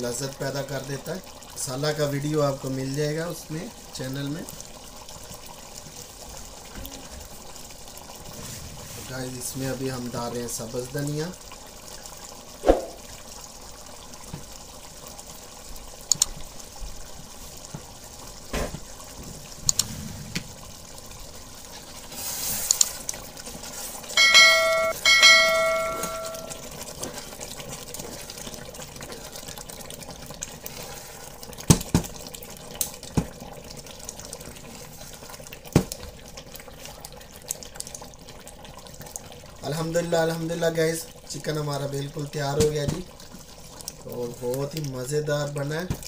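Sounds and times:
curry bubbling in a pan: 0.0 - 46.0
spatula knocking on pan: 24.2 - 26.6
two-note bell ding: 24.2 - 26.6.

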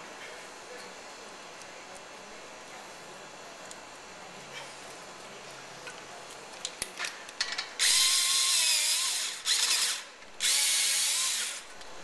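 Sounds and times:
cordless drill motor running: 7.8 - 11.7.

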